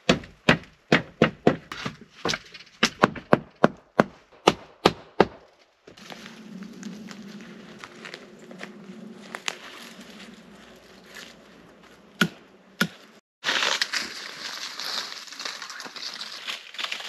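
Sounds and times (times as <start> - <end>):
wood chopping knocks: 0.1 - 5.4.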